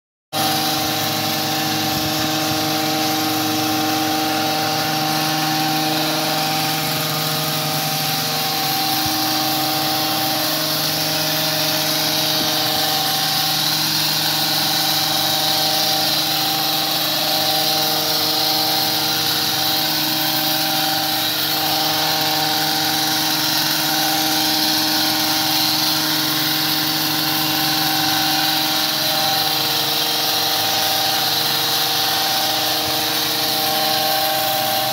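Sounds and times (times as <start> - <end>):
hedge trimmer engine running: 0.3 - 34.9
blades shearing through shrub: 0.4 - 34.9.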